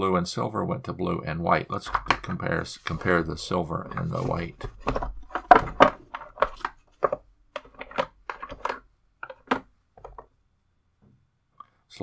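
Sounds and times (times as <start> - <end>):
wooden tiles clicking: 3.9 - 10.3.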